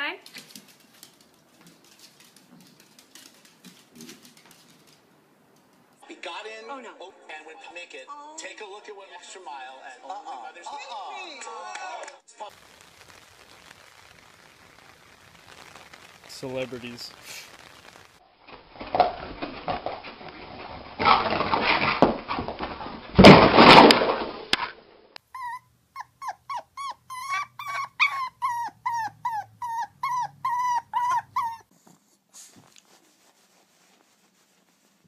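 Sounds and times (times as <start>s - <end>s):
puppy yipping: 25.3s - 31.7s.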